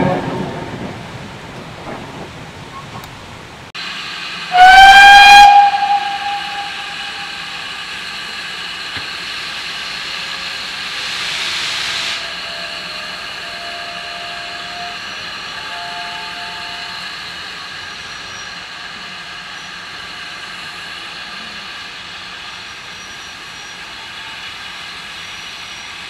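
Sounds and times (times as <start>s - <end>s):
steam hissing: 3.8s - 26.0s
steam whistle blast: 4.5s - 7.6s, 11.3s - 17.1s.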